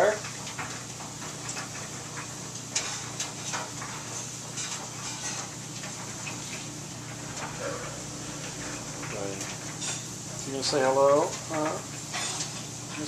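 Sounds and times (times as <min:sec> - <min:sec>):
clothes dryer humming: 0:00.0 - 0:13.0.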